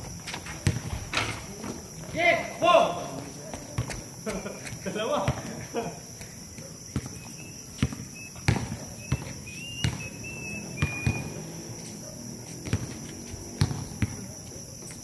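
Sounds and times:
night insects droning: 0.0s - 15.0s.

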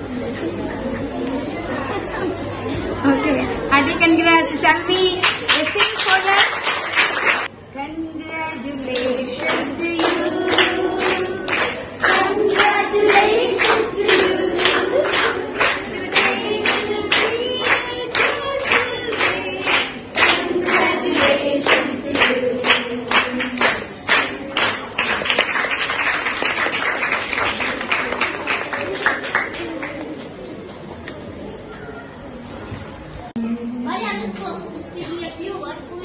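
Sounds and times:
applause: 5.0s - 7.5s, 8.8s - 30.4s
girls singing together: 8.2s - 24.7s
hands clapping a beat: 8.2s - 29.7s.

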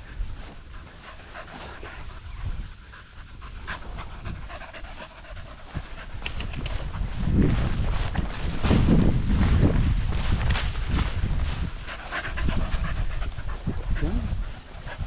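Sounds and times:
small dogs panting: 0.0s - 8.1s, 11.4s - 15.0s
grass rustling: 0.0s - 15.0s.

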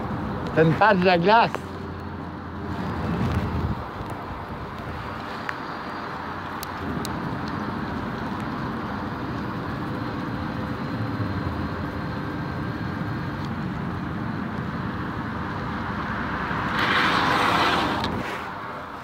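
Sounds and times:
bike rolling and wind noise: 0.0s - 19.0s
car passing: 0.0s - 19.0s.

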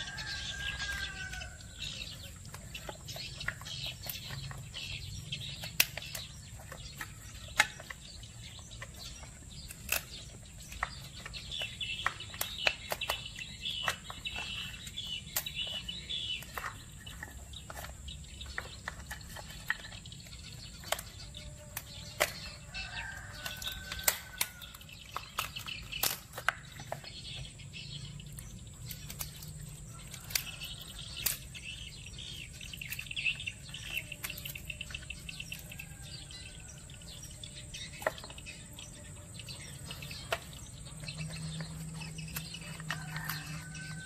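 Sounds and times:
birds calling: 0.0s - 44.0s
crab shell cracking: 18.5s - 27.2s, 28.4s - 36.3s.

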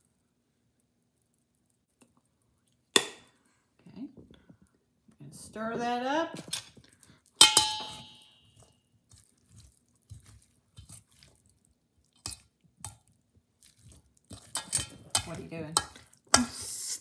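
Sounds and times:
utensil clinking metal bowl: 7.3s - 9.3s, 14.3s - 16.4s
wet scraping against bowl: 8.6s - 12.5s.

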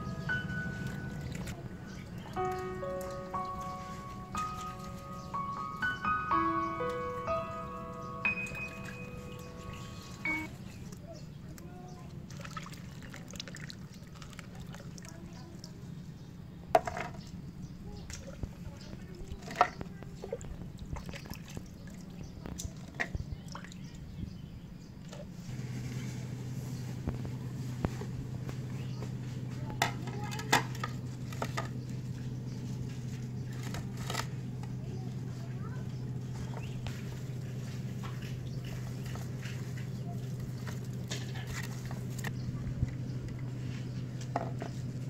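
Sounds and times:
steady low hum: 0.0s - 11.2s, 23.9s - 45.0s
water splashing in plastic basin: 12.2s - 15.7s, 18.1s - 23.9s.

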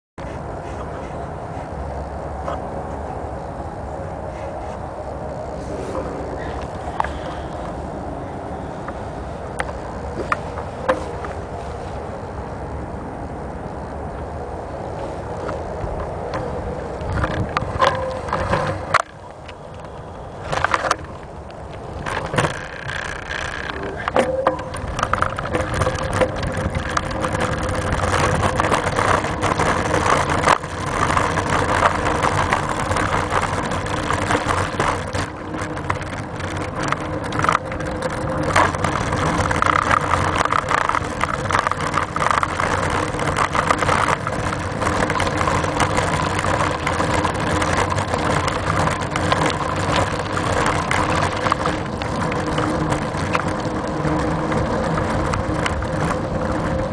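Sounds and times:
bicycle tyres rumbling: 0.2s - 56.9s
camera mount vibration: 19.9s - 56.7s.

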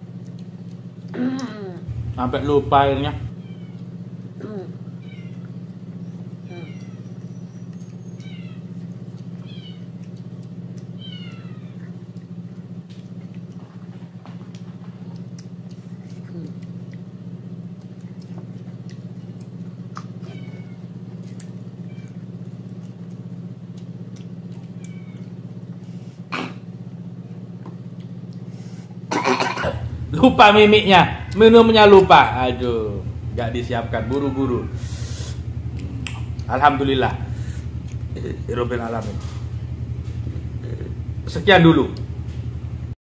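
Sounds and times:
steady low hum: 0.0s - 43.0s
high falling animal calls: 2.8s - 12.1s, 30.8s - 41.2s.

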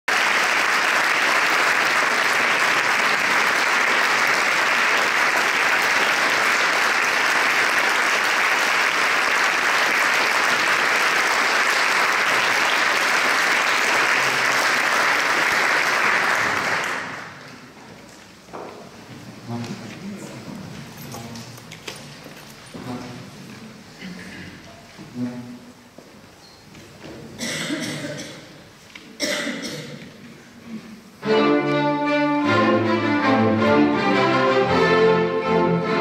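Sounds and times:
audience applauding: 0.0s - 17.6s.

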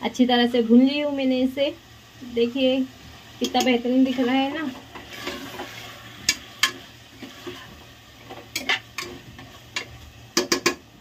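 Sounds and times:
faint sizzle: 0.0s - 11.0s
metal spoon scraping a pot: 4.0s - 10.0s.

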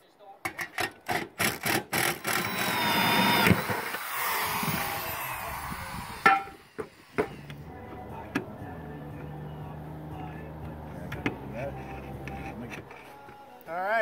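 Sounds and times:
drill hole saw cutting metal: 1.4s - 7.7s.

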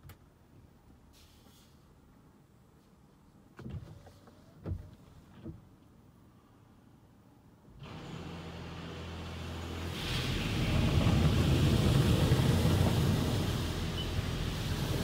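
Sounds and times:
car wash motor humming: 7.8s - 15.0s
water spray rushing: 9.2s - 15.0s
wash strips sweeping over windshield: 9.3s - 15.0s.

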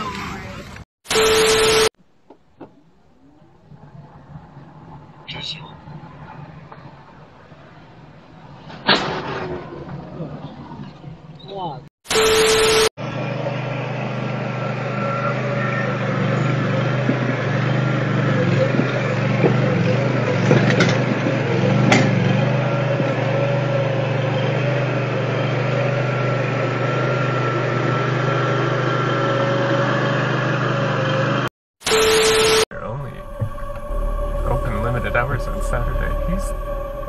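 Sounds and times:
skid steer loader engine running: 12.1s - 37.0s
steady mechanical whine: 12.1s - 37.0s.

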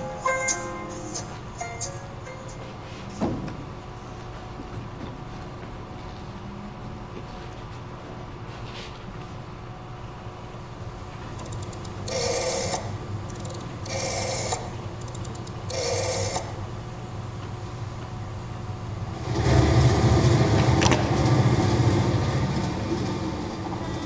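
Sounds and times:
long noisy sound effect: 19.0s - 24.0s.

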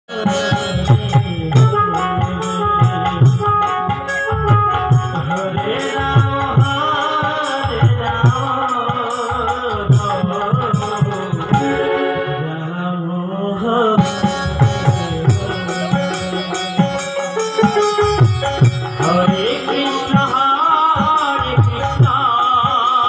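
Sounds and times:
man singing: 0.0s - 23.0s
keyboard melody: 0.1s - 13.0s, 13.6s - 23.0s.

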